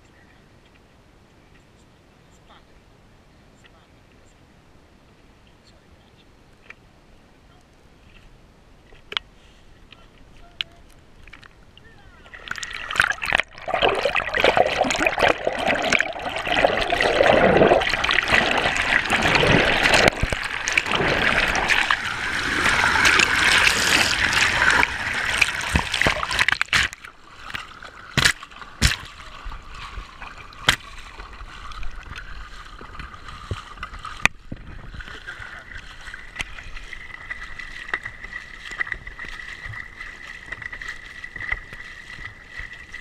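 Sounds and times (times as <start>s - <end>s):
water lapping: 9.0s - 43.0s
water rushing and splashing: 10.6s - 43.0s.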